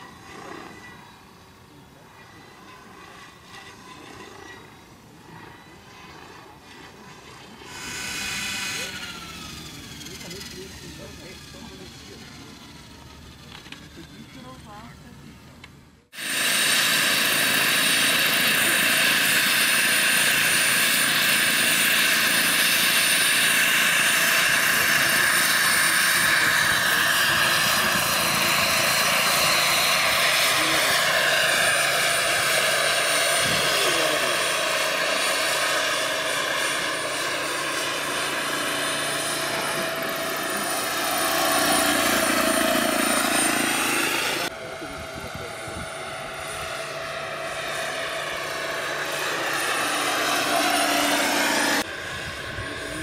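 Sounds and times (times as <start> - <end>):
constant high tone: 0.0 - 15.7
model helicopter rotor whine: 0.0 - 53.0.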